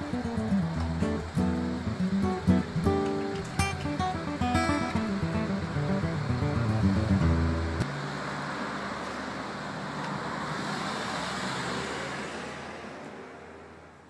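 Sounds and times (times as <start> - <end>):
guitar music: 0.0 - 7.9
city street traffic: 0.0 - 14.0.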